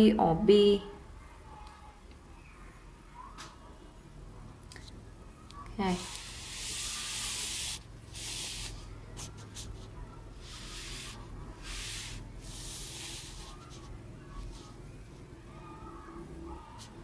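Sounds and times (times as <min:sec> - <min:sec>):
paper rustling and sliding: 0:06.0 - 0:13.9.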